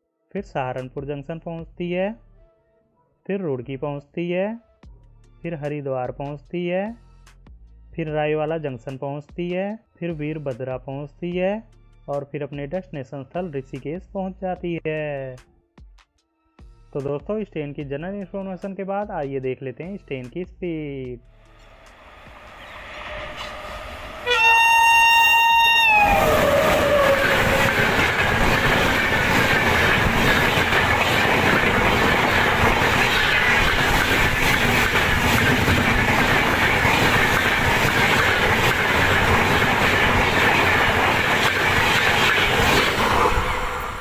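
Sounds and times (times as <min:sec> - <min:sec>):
train wheels on rails: 0:21.5 - 0:44.0
locomotive horn: 0:22.8 - 0:28.2.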